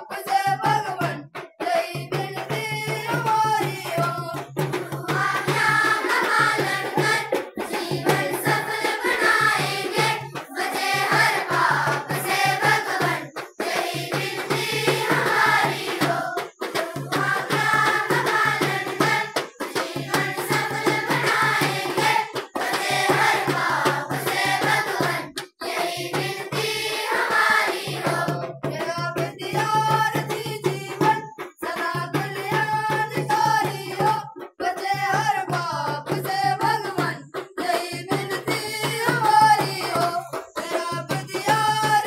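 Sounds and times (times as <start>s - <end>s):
children singing in unison: 0.0s - 34.4s, 35.4s - 42.0s
hand drum beat: 0.0s - 42.0s.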